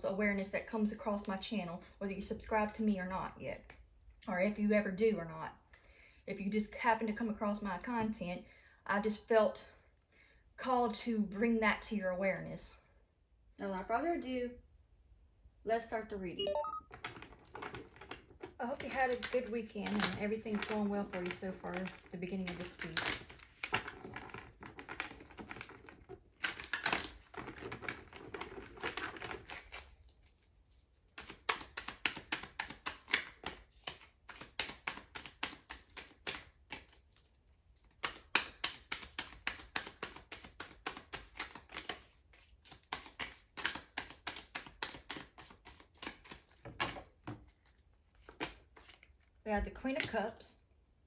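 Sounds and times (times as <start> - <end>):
cards being shuffled: 16.9 - 50.2
soft handling of cards: 16.9 - 50.2.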